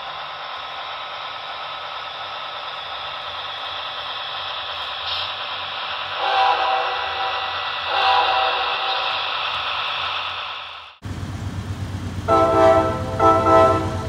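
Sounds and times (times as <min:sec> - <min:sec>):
model locomotive engine hissing: 0:00.0 - 0:14.0
locomotive horn blast: 0:06.2 - 0:08.8, 0:12.3 - 0:14.0.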